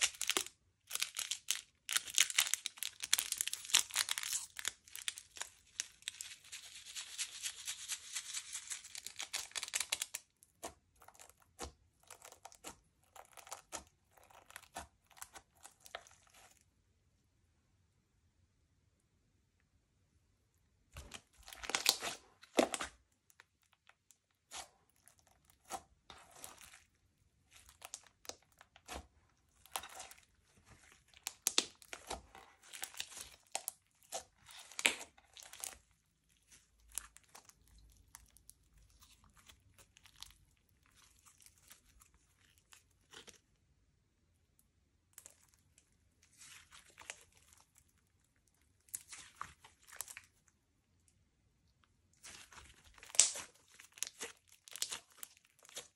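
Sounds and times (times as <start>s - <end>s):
slime crackling and popping: 0.0s - 16.5s, 21.0s - 43.4s, 52.2s - 55.9s.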